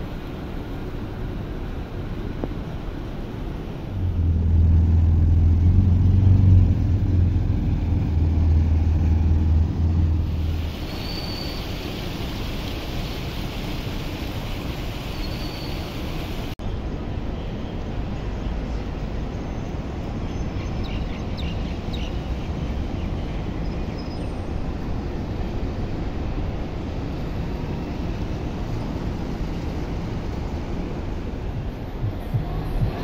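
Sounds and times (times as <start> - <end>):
traffic rumble: 0.0 - 33.0
wind noise: 20.2 - 33.0.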